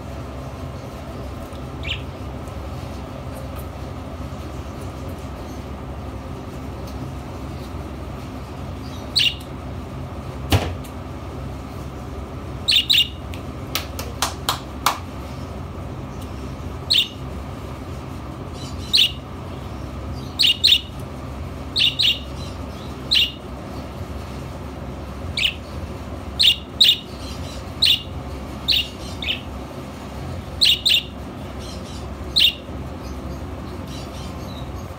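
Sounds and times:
steady low hum: 0.0 - 34.9
budgerigar chirping: 1.8 - 2.2, 8.9 - 9.4, 12.6 - 13.2, 16.8 - 17.2, 18.6 - 20.9, 21.7 - 23.4, 25.4 - 25.7, 26.4 - 29.5, 30.6 - 32.7.

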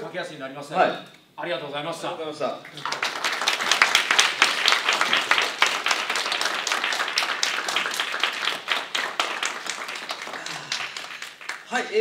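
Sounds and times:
audience applause: 2.7 - 11.8.

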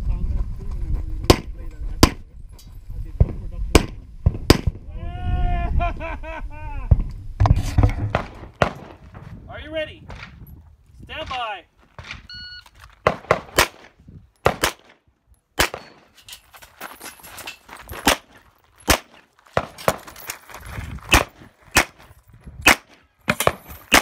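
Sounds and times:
handgun shots: 13.0 - 15.0, 15.6 - 16.1, 18.0 - 20.1, 21.1 - 22.0, 22.6 - 24.0.

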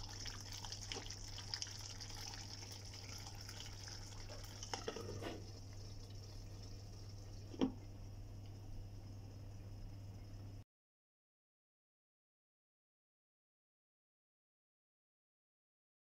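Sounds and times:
gravy bubbling and popping: 0.0 - 8.7.

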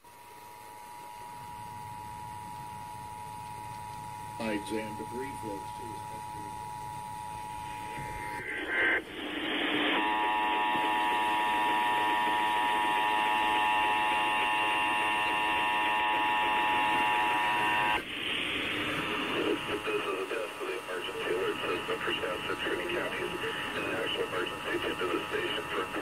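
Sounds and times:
radio static: 1.0 - 26.0.

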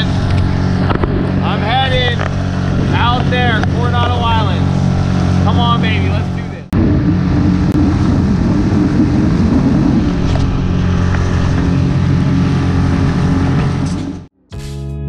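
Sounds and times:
water and wind rushing: 0.0 - 14.3
boat motor running: 0.0 - 14.4
guitar music: 11.8 - 15.0.

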